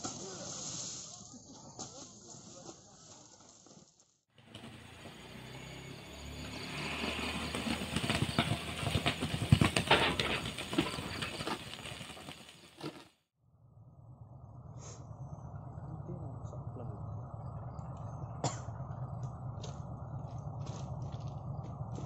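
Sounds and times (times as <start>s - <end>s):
heavy machinery engine hum: 4.4s - 11.4s, 13.6s - 22.0s
metallic clanks and rattles: 8.4s - 11.6s.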